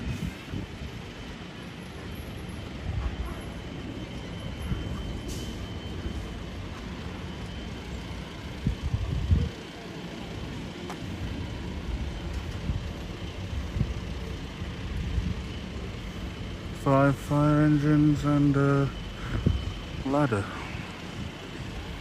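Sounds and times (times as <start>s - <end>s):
diesel engines idling: 0.0s - 22.0s.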